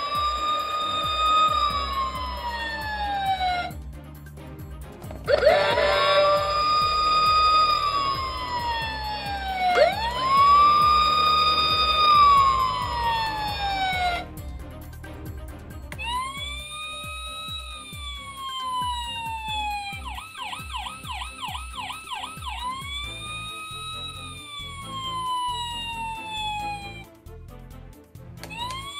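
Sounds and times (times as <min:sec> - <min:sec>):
toy fire truck siren wailing: 0:00.0 - 0:03.7, 0:05.3 - 0:14.3, 0:16.0 - 0:27.1, 0:28.5 - 0:28.9.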